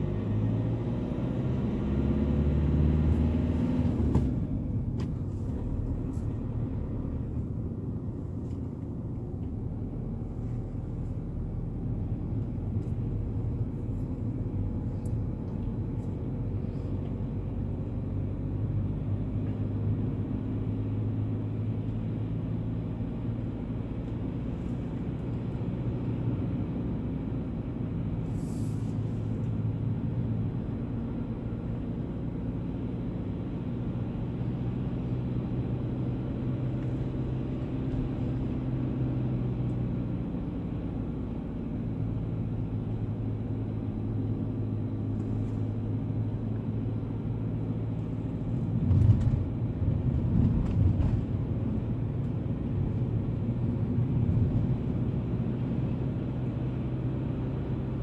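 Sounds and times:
car engine and tyre hum: 0.0s - 58.0s.

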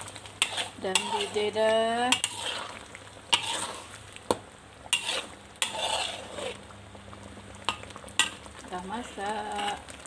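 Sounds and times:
gravy simmering sizzle: 0.0s - 10.0s
wooden spatula scraping a pan: 0.4s - 4.0s, 4.9s - 6.6s.

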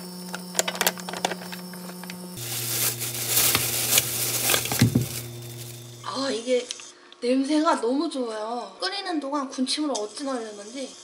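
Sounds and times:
steady hum: 0.0s - 6.6s.

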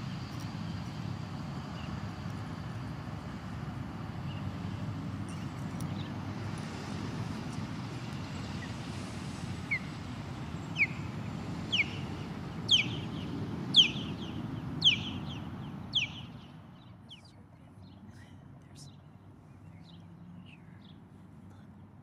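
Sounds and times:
bird whistled calls: 10.7s - 11.1s, 11.7s - 16.4s.

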